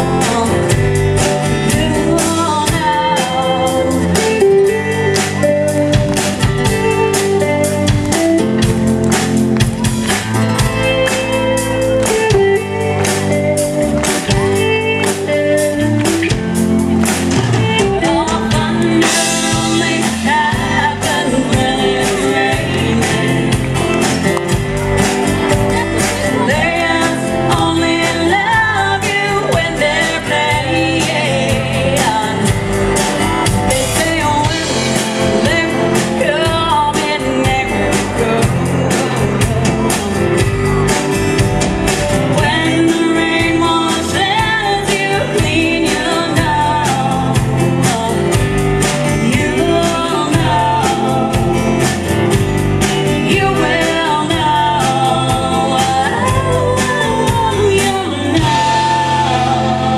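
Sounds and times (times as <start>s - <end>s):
live band playing: 0.0s - 59.9s
person singing: 0.0s - 59.9s
steady drum beat: 0.0s - 59.9s.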